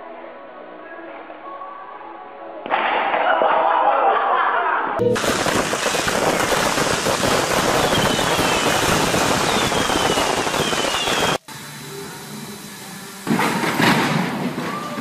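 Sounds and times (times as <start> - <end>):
fireworks crackling bangs: 5.0 - 11.4, 13.2 - 15.0
firework whistles: 5.0 - 11.5.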